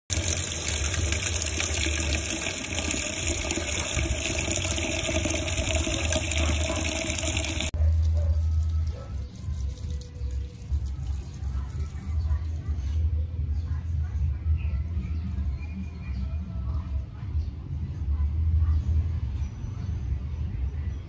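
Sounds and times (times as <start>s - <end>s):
water pouring into metal kettle: 0.1s - 7.8s.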